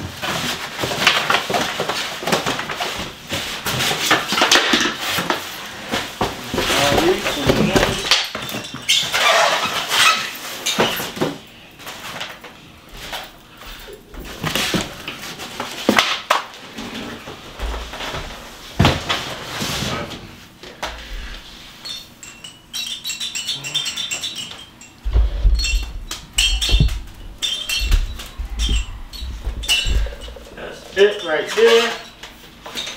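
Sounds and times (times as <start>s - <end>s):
plastic parts clattering: 0.2s - 12.4s
dull low thumps: 25.1s - 30.6s.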